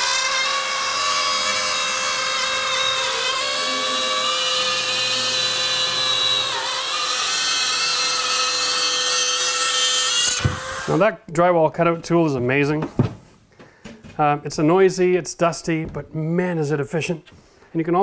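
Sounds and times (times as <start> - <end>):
spiral saw cutting drywall: 0.0 - 11.0.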